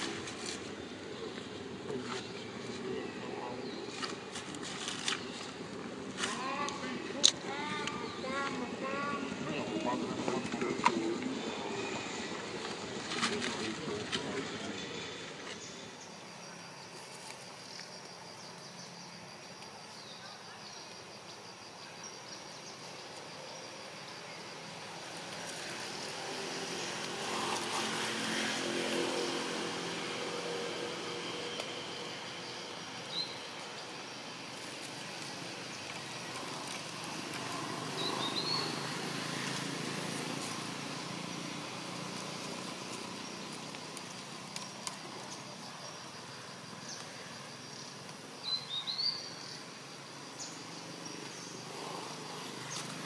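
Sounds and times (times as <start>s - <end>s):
high insect trill: 15.0s - 53.0s.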